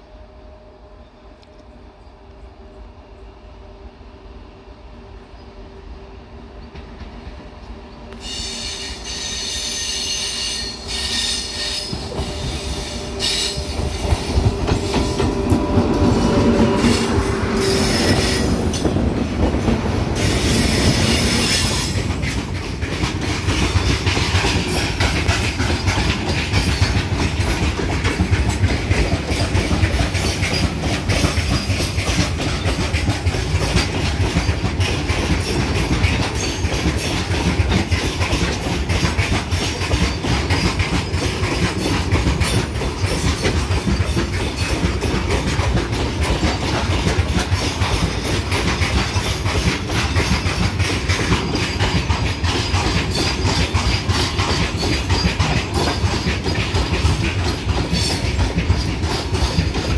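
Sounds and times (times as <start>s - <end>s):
locomotive high whine: 0.0s - 34.8s
train rumble: 0.0s - 59.9s
wagon wheels clattering over rail joints: 18.8s - 59.9s.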